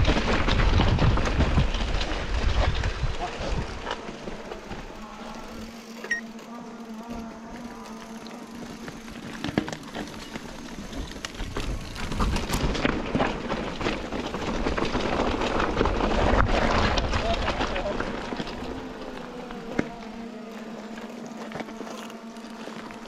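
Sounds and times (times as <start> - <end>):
bike knocking over loose rocks: 0.0 - 23.0
bike rattling: 0.0 - 23.0
bike tyres rolling on dirt: 0.0 - 23.0.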